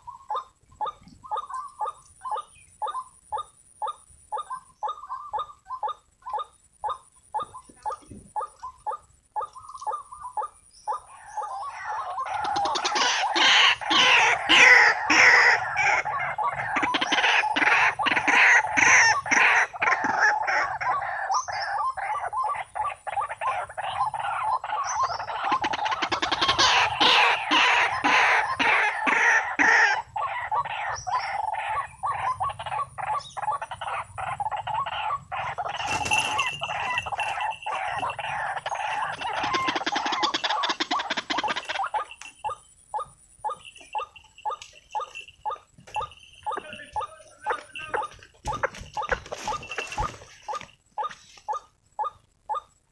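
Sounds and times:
waterhen calling: 3.8s - 52.7s.

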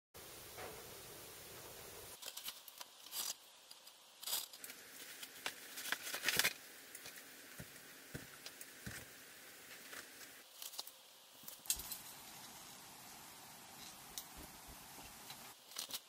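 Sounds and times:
packaging scraping and rustling: 2.2s - 7.3s
plastic bag crinkling: 2.2s - 7.3s.

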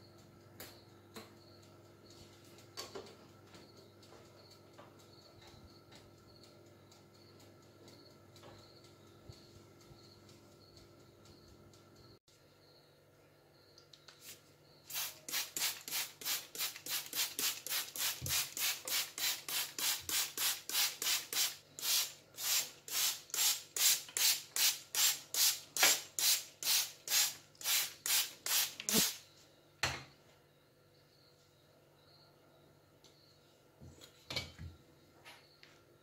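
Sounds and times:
spray bottle squirting water: 14.9s - 29.2s.

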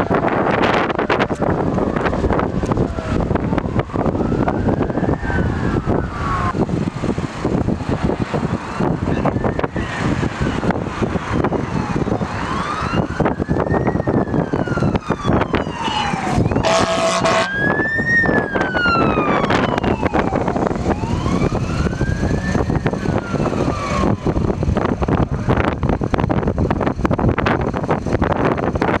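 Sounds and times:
fire truck sirens wailing: 0.0s - 28.9s
passing trucks engine and tyres: 0.0s - 29.0s
wind buffeting microphone: 0.0s - 29.0s
truck horn: 16.5s - 17.7s.

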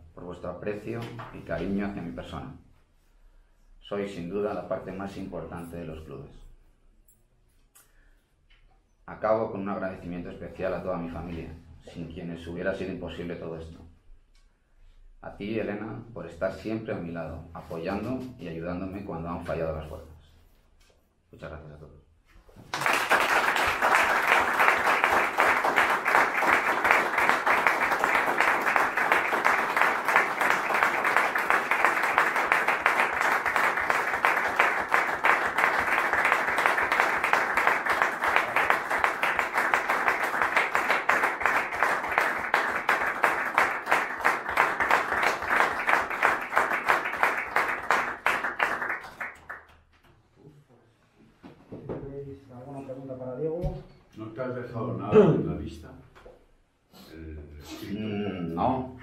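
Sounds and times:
crowd applauding: 22.6s - 49.7s.

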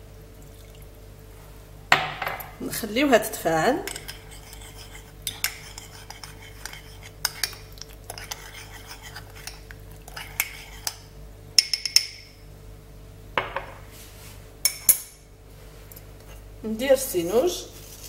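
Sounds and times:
teaspoon clinking against bowl: 11.6s - 12.3s.

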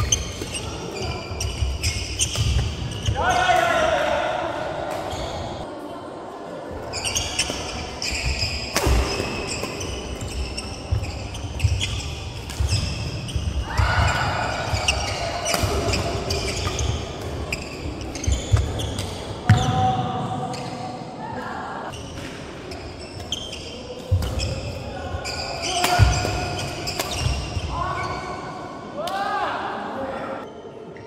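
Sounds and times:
shoes squeaking on court: 0.0s - 3.3s, 4.9s - 5.6s, 6.9s - 19.7s, 21.9s - 28.4s
rackets hitting shuttlecock: 8.6s - 13.4s, 14.0s - 17.4s, 25.7s - 27.5s.

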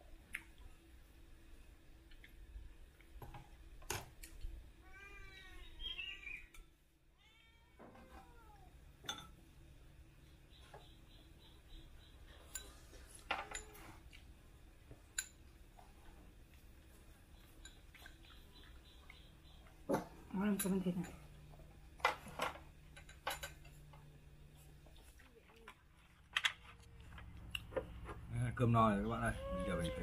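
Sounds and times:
spoon clinking on ceramic bowls: 9.0s - 9.4s
small animal calling: 29.0s - 30.0s.

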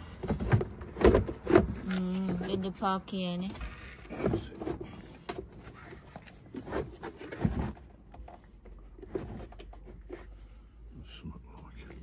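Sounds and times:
hollow plastic knocks and scrapes: 0.1s - 2.8s, 3.5s - 10.4s.

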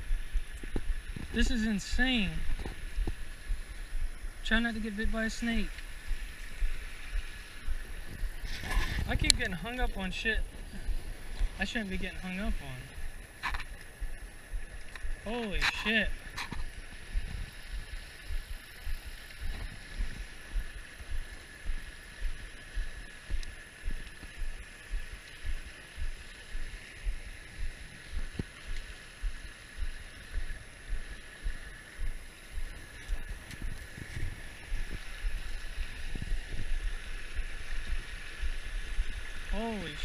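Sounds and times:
regular low thumping: 0.0s - 8.4s, 9.0s - 15.3s, 16.0s - 39.6s
floodwater rushing over rocks: 0.0s - 40.0s.

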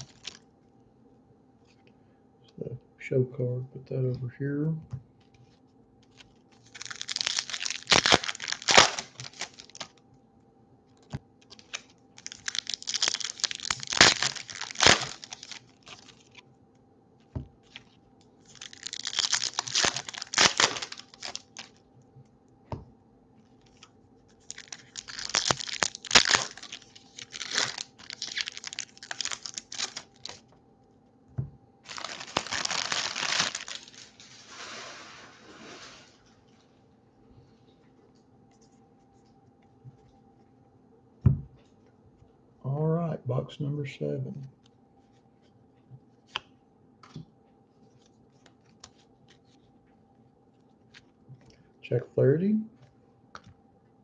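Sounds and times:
foil wrappers tearing and crinkling: 0.0s - 0.4s, 6.0s - 10.0s, 11.0s - 16.4s, 17.6s - 21.8s, 23.6s - 30.5s, 31.8s - 36.1s.

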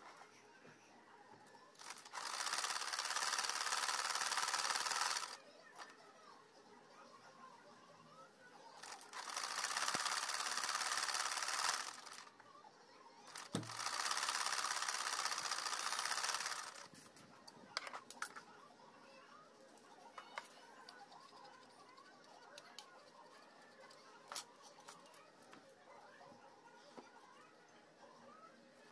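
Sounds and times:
sewing machine clattering: 1.8s - 5.4s, 8.8s - 12.3s, 13.3s - 16.9s.

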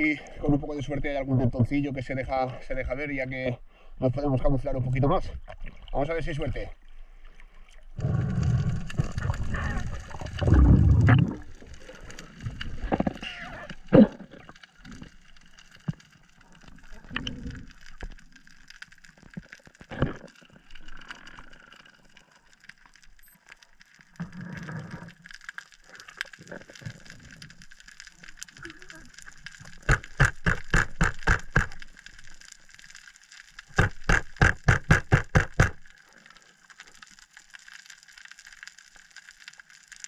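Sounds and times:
water rushing and gurgling: 7.9s - 22.1s
underwater clicks: 24.2s - 32.5s, 33.5s - 36.0s.

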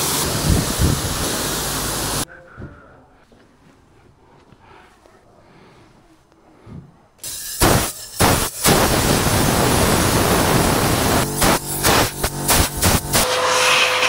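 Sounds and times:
compressed air blow gun hissing: 0.0s - 2.2s, 7.2s - 14.0s.

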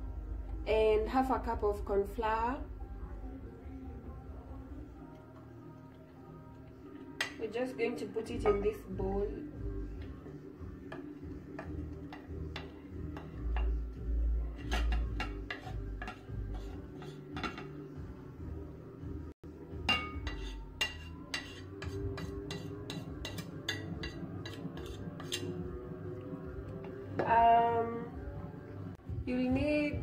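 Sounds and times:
metal spoon clinking on plate: 19.9s - 25.6s.

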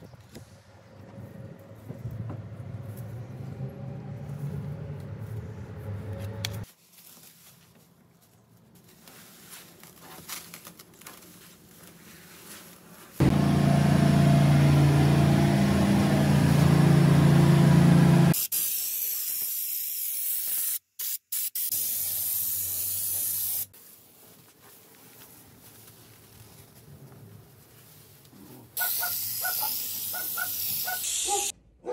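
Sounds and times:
spray gun hissing: 18.4s - 23.7s, 28.8s - 31.5s.

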